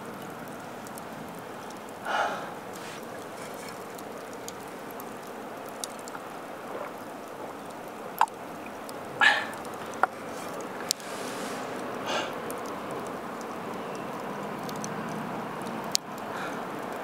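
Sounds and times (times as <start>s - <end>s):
outdoor background hiss: 0.0s - 17.0s
faint light clicks: 11.7s - 17.0s.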